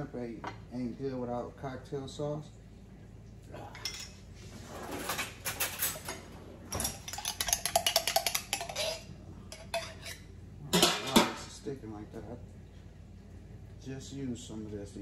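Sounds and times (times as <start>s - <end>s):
metal spoon scraping glass jar: 6.9s - 10.2s.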